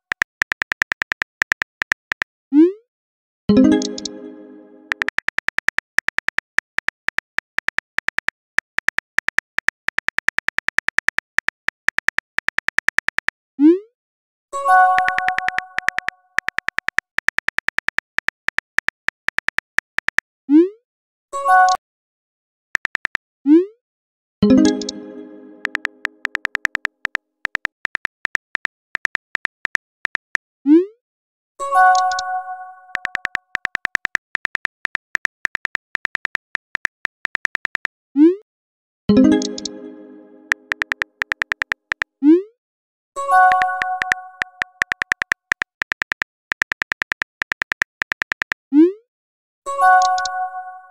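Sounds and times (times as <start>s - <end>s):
keyboard tap clicks: 0.0s - 2.3s, 3.7s - 4.2s, 4.9s - 13.3s, 15.0s - 20.2s, 22.8s - 23.2s, 25.6s - 30.4s, 32.9s - 37.9s, 39.3s - 39.8s, 40.5s - 42.1s, 43.5s - 48.6s
bright multi-note chime: 24.4s - 25.7s, 39.1s - 40.5s.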